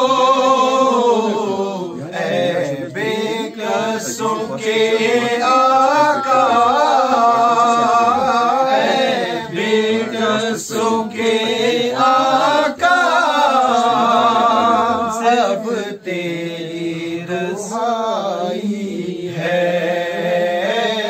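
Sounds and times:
man singing unaccompanied: 0.0 - 21.0.

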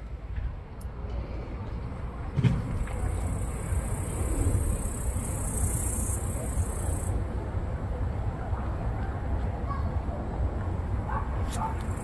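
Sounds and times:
cricket trilling: 3.0 - 7.2.

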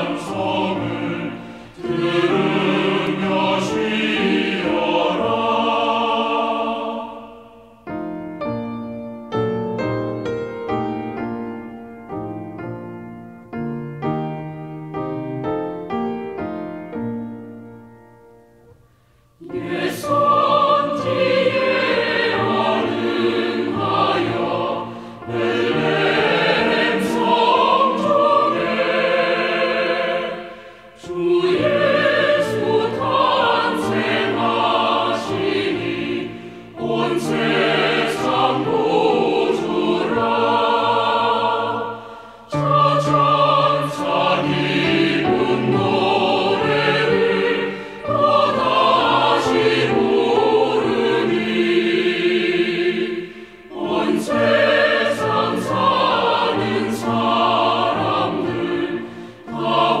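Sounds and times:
choir singing a carol: 0.0 - 12.7, 15.1 - 60.0.

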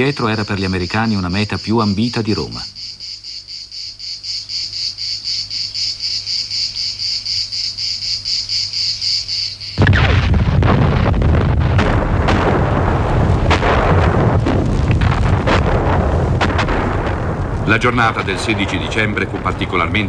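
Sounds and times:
insects chirping: 0.0 - 20.0
explosions: 9.8 - 20.0
gunfire: 9.8 - 20.0.

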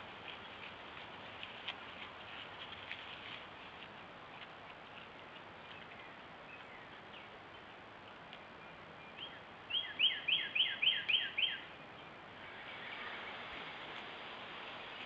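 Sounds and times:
faint steady hiss: 0.0 - 15.0
bird whistling song: 9.0 - 11.8.

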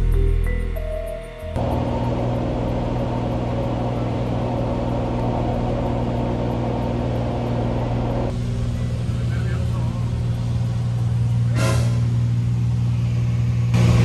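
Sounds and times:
propeller aircraft engine drone: 1.6 - 11.5.

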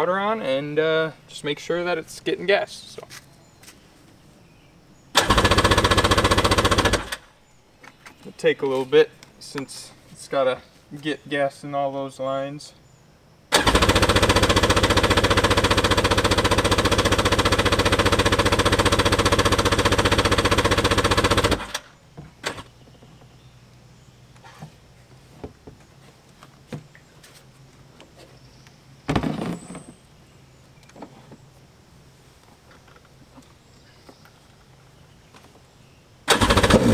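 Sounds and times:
electric starter cranking engine: 5.2 - 7.3, 13.5 - 22.6, 36.3 - 36.9.

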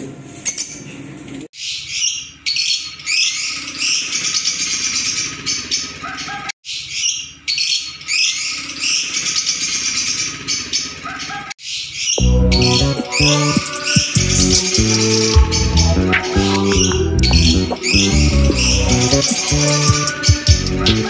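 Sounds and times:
small birds chirping: 14.8 - 21.0.

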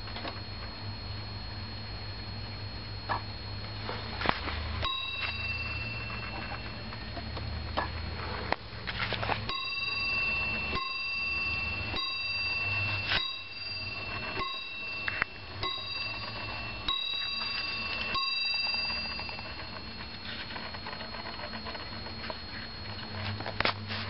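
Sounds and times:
wall clock bell striking: 4.8 - 7.0, 9.4 - 21.0.

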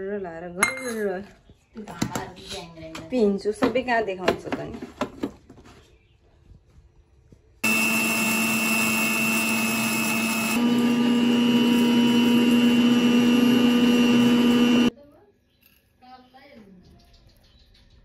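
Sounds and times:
mixer grinder motor whining: 7.6 - 14.9.

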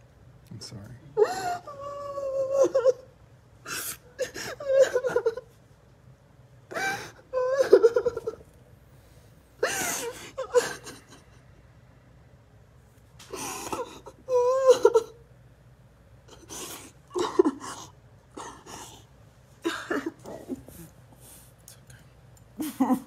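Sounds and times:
woman sobbing: 1.2 - 5.5, 6.7 - 8.4, 9.6 - 11.5, 13.3 - 15.2, 16.3 - 20.9, 22.6 - 23.0.

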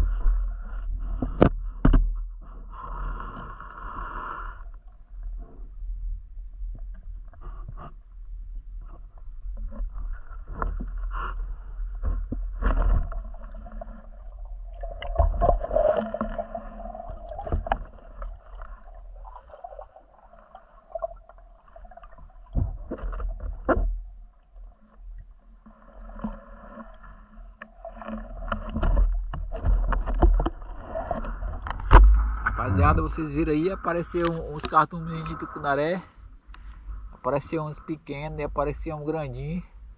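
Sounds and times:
water sloshing and gurgling: 0.0 - 39.9
knocks underwater: 1.0 - 2.5, 11.9 - 20.0, 21.8 - 24.2, 27.7 - 33.4
water surges: 12.7 - 22.7.

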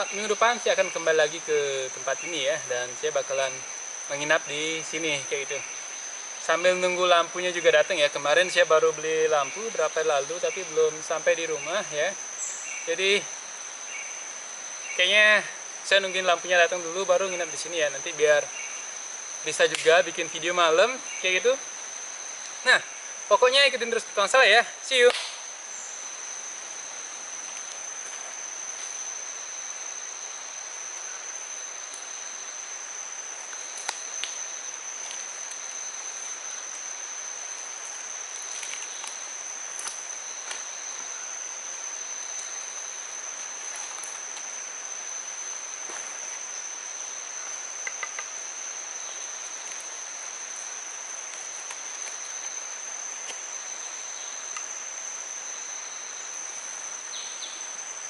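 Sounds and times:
insects droning: 0.0 - 58.0
soft hiss: 0.0 - 58.0
faint ticks: 33.5 - 34.4, 47.8 - 48.4.

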